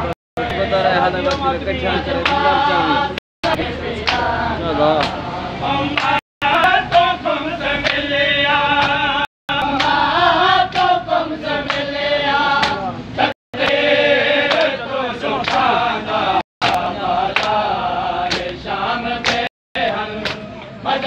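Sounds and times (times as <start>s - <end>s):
men chanting a lament: 0.0s - 21.0s
hands slapping chests: 20.2s - 20.4s.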